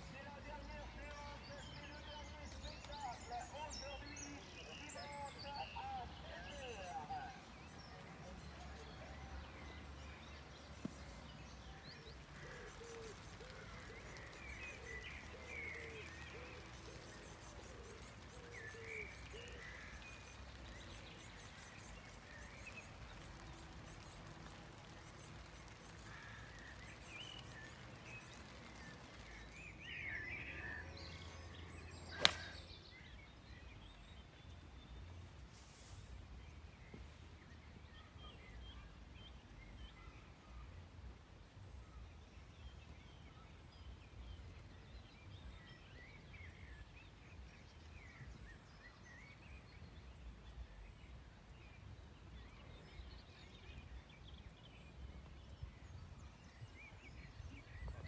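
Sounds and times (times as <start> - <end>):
birds chirping: 0.0 - 35.4.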